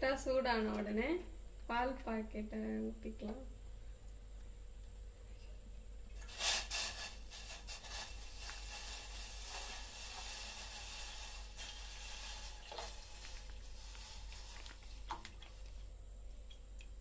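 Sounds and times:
milk pouring into pot: 0:06.2 - 0:15.9.

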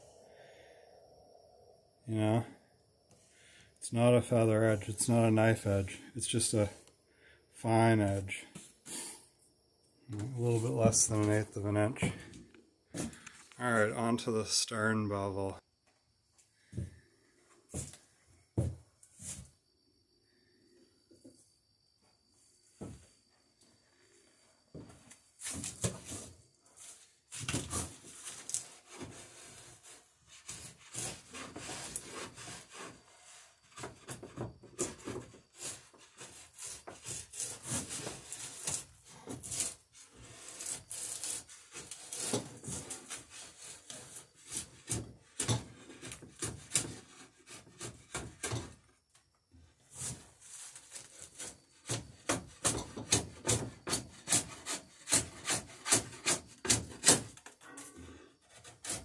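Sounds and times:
drawknife scraping wood: 0:27.7 - 0:33.2, 0:34.8 - 0:48.6, 0:49.9 - 0:57.5, 0:58.1 - 0:59.0.

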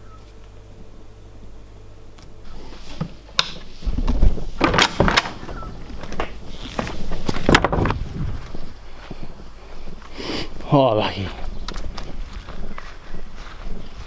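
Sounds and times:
low handling rumble: 0:02.4 - 0:14.0
door knocks and clatter: 0:03.9 - 0:08.2.

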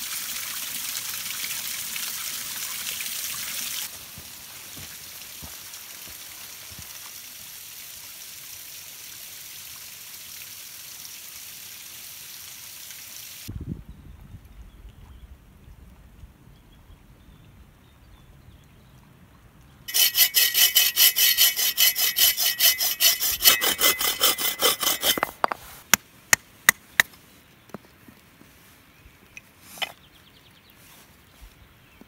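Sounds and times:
hand saw cutting wood: 0:19.9 - 0:25.7.

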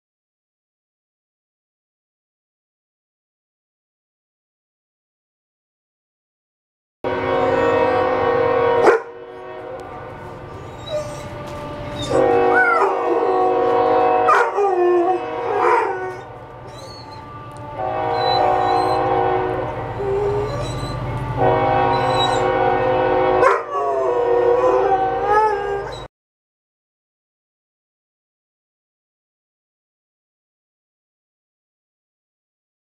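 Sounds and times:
train horn blasts: 0:07.0 - 0:26.1
dog howling: 0:10.4 - 0:17.3, 0:18.1 - 0:21.1, 0:21.9 - 0:22.6, 0:23.4 - 0:26.1.

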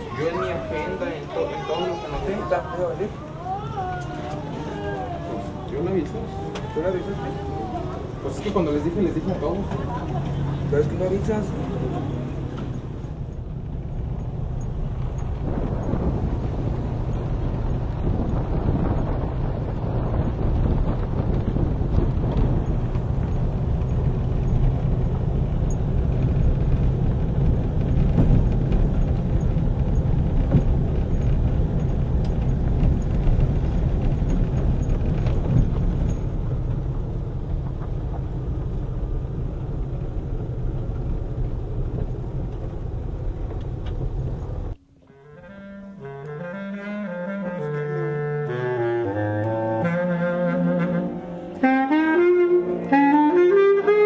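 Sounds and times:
car road and wind rumble: 0:00.0 - 0:45.2, 0:46.0 - 0:54.0
wind-instrument melody music: 0:44.8 - 0:54.0.

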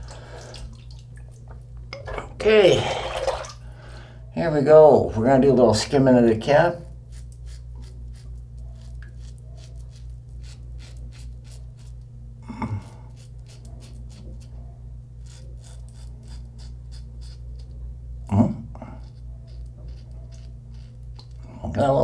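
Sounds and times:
steady low hum: 0:00.0 - 0:22.0
razor scraping stubble: 0:06.9 - 0:12.1, 0:12.7 - 0:14.6, 0:15.2 - 0:17.8, 0:18.9 - 0:21.4.

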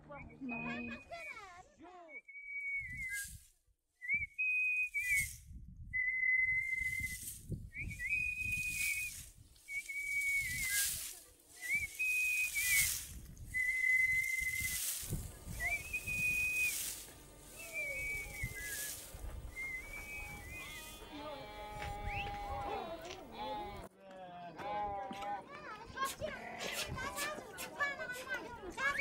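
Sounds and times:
person whistling short notes: 0:02.1 - 0:03.4, 0:04.0 - 0:11.0, 0:11.6 - 0:14.8, 0:15.5 - 0:16.8, 0:17.6 - 0:21.0, 0:22.0 - 0:22.4
grain and chaff showering down: 0:06.9 - 0:21.1.

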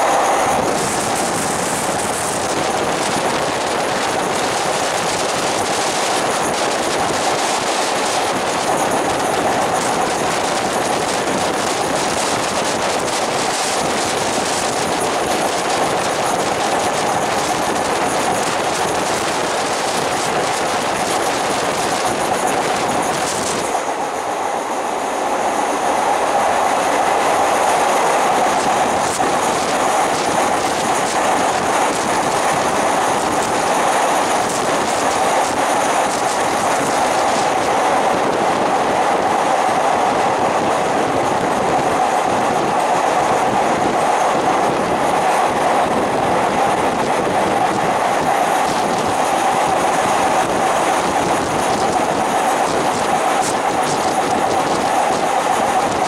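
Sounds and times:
train wheels rumbling on rail: 0:00.0 - 0:56.0.

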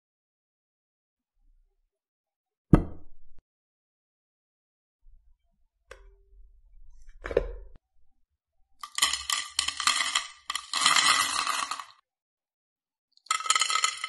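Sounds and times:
salt crystals pouring: 0:08.8 - 0:12.0, 0:13.2 - 0:14.0.

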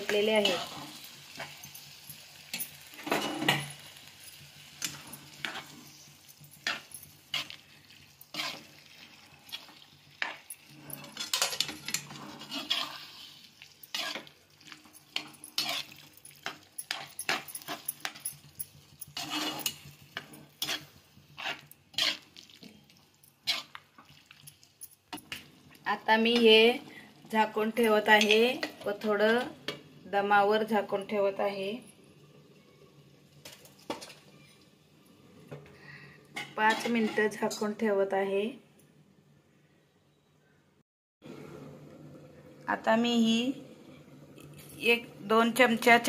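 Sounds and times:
metal spatula scraping a pan: 0:00.0 - 0:22.8, 0:23.4 - 0:24.0, 0:36.4 - 0:37.6.

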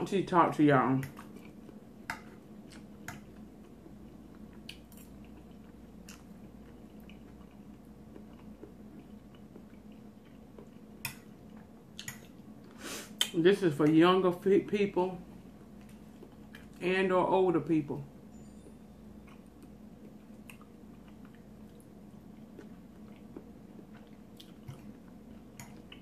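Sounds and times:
faint room hum: 0:00.0 - 0:26.0
soft chewing: 0:01.0 - 0:13.4, 0:15.4 - 0:16.8, 0:19.0 - 0:26.0.

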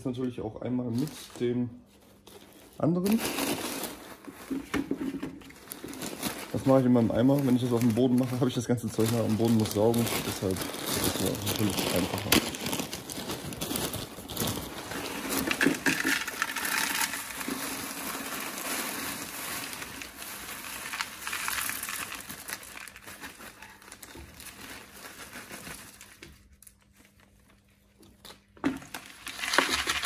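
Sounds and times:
plastic bag crinkling: 0:00.6 - 0:30.0
beads pouring into sieve: 0:14.6 - 0:23.6, 0:29.0 - 0:30.0.

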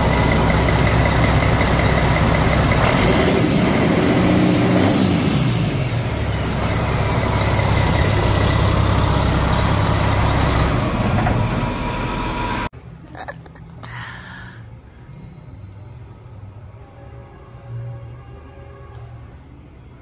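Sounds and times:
diesel engine running: 0:00.0 - 0:12.7.

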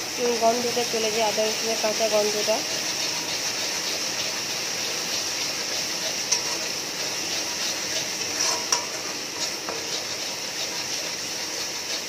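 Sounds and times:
paste sizzling in oil: 0:00.0 - 0:12.0
metal spatula scraping pan: 0:05.1 - 0:12.0.

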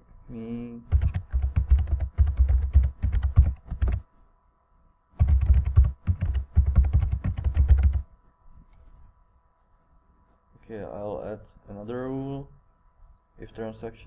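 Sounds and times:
computer keyboard typing: 0:00.9 - 0:04.0, 0:05.2 - 0:08.0.

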